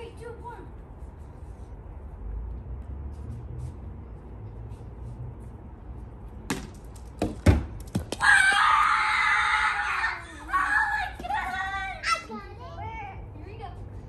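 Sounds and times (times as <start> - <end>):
child screaming: 8.2 - 12.4.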